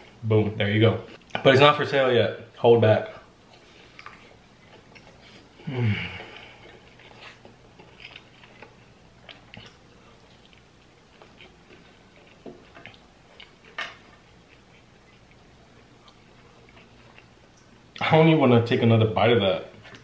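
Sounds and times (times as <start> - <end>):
person chewing crunchy food: 3.4 - 18.0.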